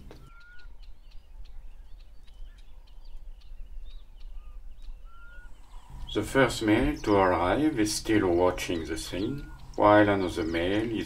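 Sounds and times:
birds chirping: 0:00.0 - 0:11.0
bird rising whistle: 0:00.2 - 0:00.8, 0:04.3 - 0:06.2
low steady rumble: 0:04.9 - 0:11.0.

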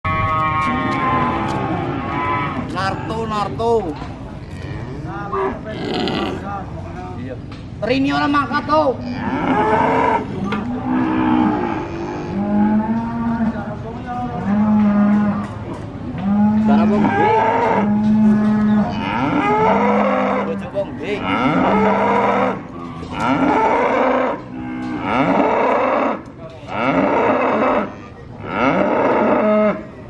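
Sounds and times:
cattle mooing: 0:00.1 - 0:03.4, 0:04.4 - 0:06.5, 0:09.0 - 0:13.6, 0:16.2 - 0:29.9.

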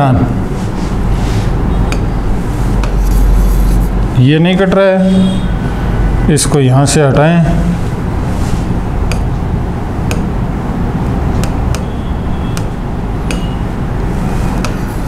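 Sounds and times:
taps on glass screen: 0:09.1 - 0:09.3, 0:10.1 - 0:10.4, 0:11.4 - 0:13.6.

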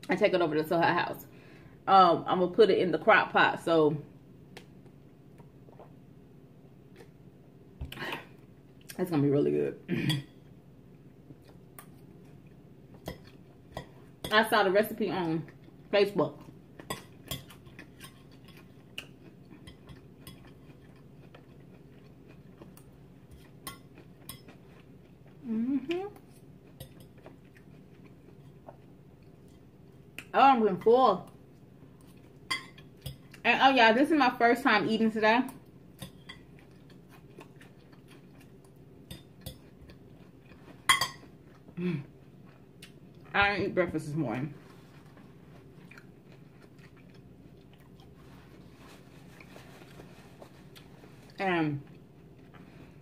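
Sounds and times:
chewing: 0:15.4 - 0:30.3, 0:36.0 - 0:43.3, 0:44.6 - 0:53.0.

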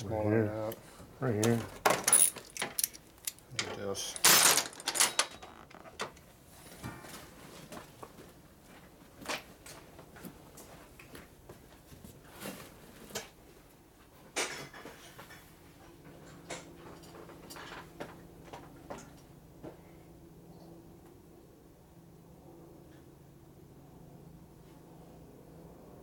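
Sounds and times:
tools and metal parts clattering: 0:01.4 - 0:06.2.

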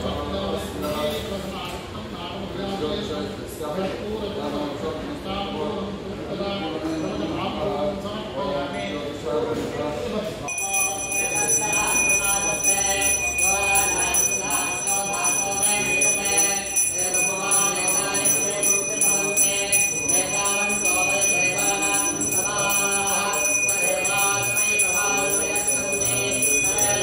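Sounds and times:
bell ringing: 0:10.5 - 0:27.0
person chanting: 0:10.5 - 0:27.0.

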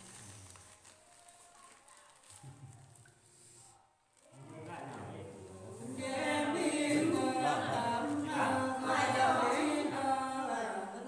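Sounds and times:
women singing unaccompanied: 0:05.8 - 0:11.0.

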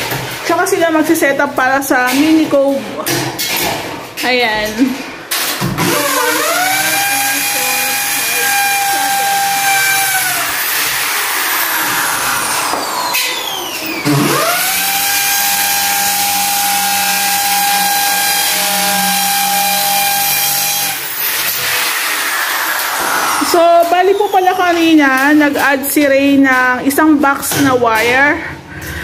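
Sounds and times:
power tool motor whine: 0:05.8 - 0:24.6.

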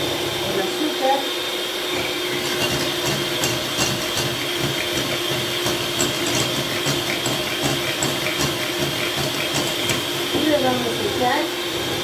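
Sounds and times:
electric hand mixer whisking: 0:00.0 - 0:12.0.

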